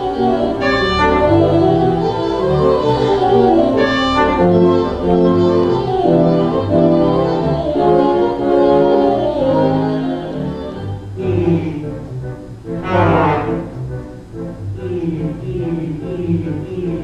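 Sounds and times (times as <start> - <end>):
pipe organ chords: 0.0 - 9.4, 11.1 - 14.8.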